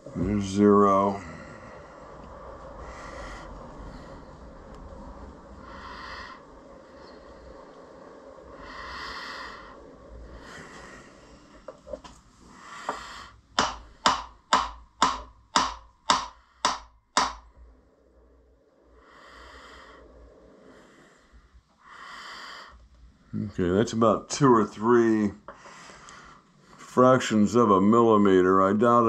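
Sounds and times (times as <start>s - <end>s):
soft breathing: 1.0s - 14.1s, 17.6s - 23.6s, 25.4s - 27.0s
sharp metallic knocks: 13.6s - 17.5s.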